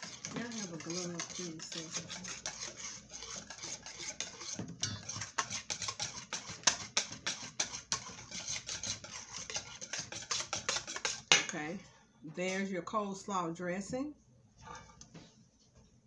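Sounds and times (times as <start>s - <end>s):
whisk clicking against metal bowl: 0.0s - 11.5s.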